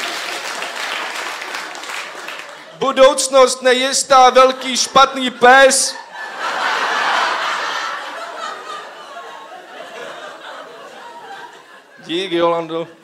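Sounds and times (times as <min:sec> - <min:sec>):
audience laughing: 0:04.6 - 0:12.3.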